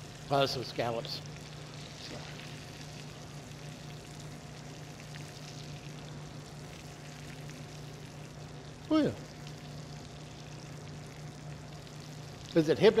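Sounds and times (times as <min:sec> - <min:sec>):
scallops sizzling in a skillet: 0:00.0 - 0:13.0
steady low hum: 0:00.0 - 0:13.0.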